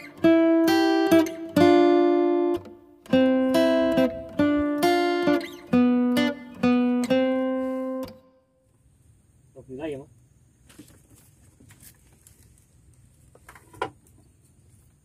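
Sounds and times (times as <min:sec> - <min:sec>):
acoustic guitar strumming chords: 0:00.0 - 0:08.5.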